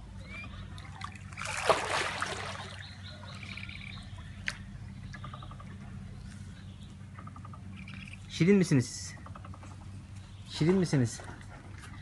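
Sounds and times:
low steady hum: 0:00.0 - 0:12.0
bird chirping: 0:00.1 - 0:01.5, 0:02.5 - 0:08.3
water sloshing and splashing: 0:00.4 - 0:04.6.

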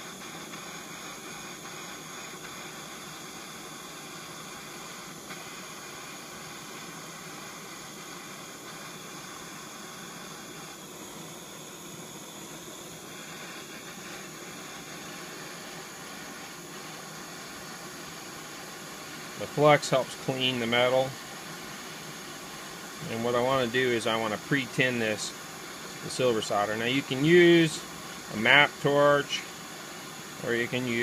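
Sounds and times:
propane torch hissing: 0:00.0 - 0:31.0.

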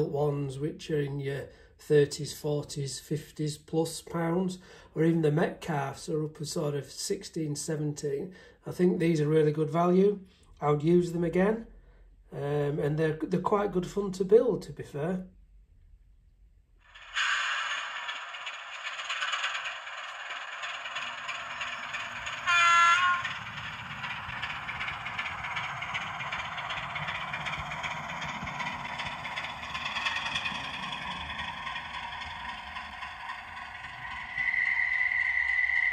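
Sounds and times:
diesel engine sound from small speaker: 0:17.3 - 0:35.9.

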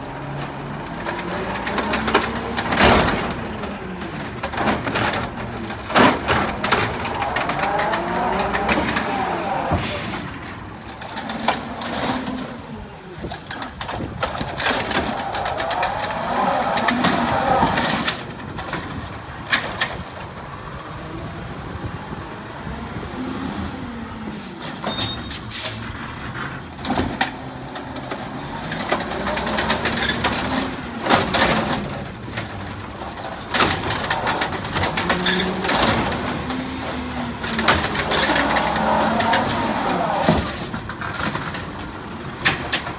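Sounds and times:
garbage truck engine: 0:00.0 - 0:42.9
bangs and clatters: 0:01.0 - 0:12.6
air brakes hissing: 0:09.8 - 0:10.4.

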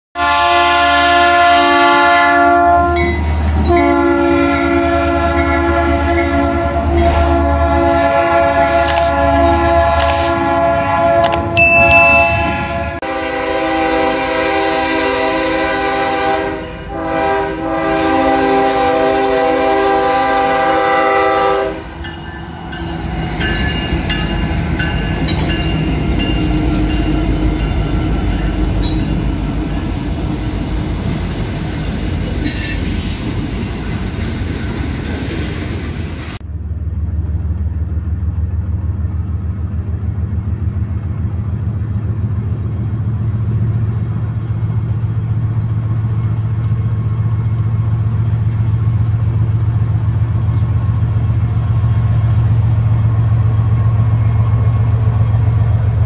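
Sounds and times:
locomotive air horn chords: 0:00.2 - 0:22.0
train passing with heavy rumble: 0:00.2 - 0:56.0.

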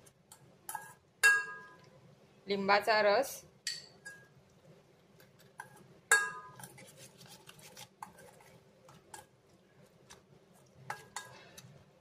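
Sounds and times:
spoon stirring and scraping bowl: 0:00.0 - 0:01.9, 0:03.7 - 0:04.4, 0:05.1 - 0:12.0
spoon clinking on bowl: 0:00.7 - 0:01.9, 0:03.7 - 0:04.3, 0:06.1 - 0:06.7.

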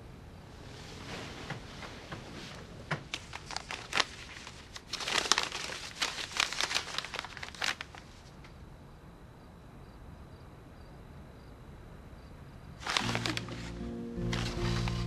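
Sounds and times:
paper crinkling: 0:02.2 - 0:08.3, 0:12.8 - 0:15.0.

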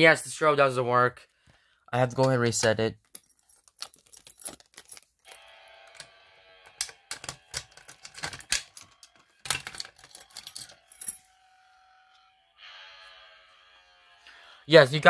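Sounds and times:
keys jangling and clicking: 0:03.0 - 0:05.4, 0:07.1 - 0:11.3.

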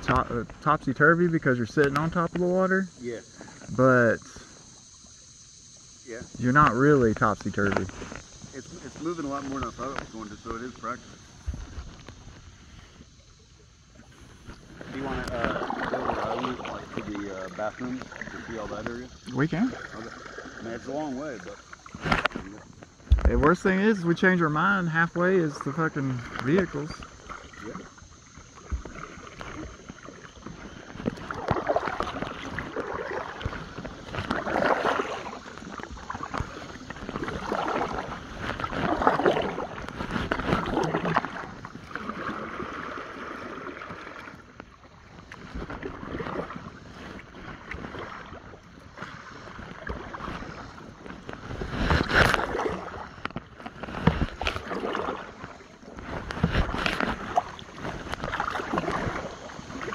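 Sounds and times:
kayak paddle strokes in water: 0:00.0 - 0:59.9
water splashing and dripping: 0:13.9 - 0:24.6, 0:25.2 - 0:59.9.

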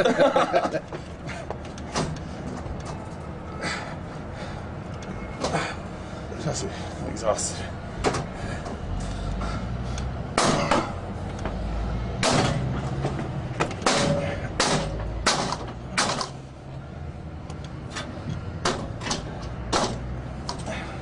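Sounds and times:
pry bar banging on metal gate: 0:12.2 - 0:12.7, 0:13.8 - 0:16.4.

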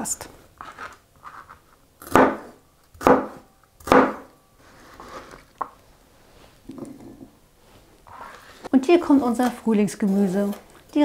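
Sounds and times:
knife chopping on cutting board: 0:02.0 - 0:04.3
soft scraping of pieces: 0:04.6 - 0:08.8, 0:09.4 - 0:11.0.

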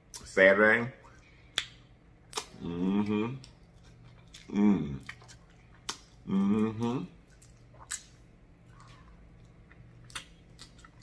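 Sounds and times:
wet mouth clicks and smacks: 0:01.5 - 0:02.6, 0:04.3 - 0:06.2, 0:07.4 - 0:08.2, 0:09.7 - 0:11.0
person humming: 0:02.6 - 0:03.4, 0:06.3 - 0:07.1.

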